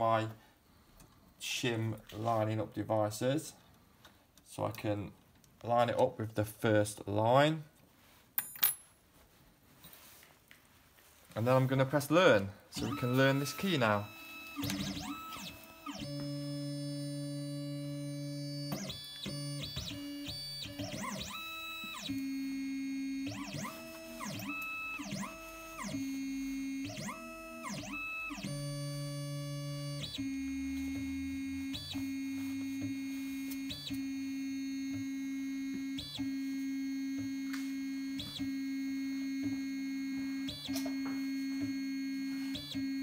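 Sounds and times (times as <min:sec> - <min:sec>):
stepper motors whining: 0:12.8 - 0:43.0.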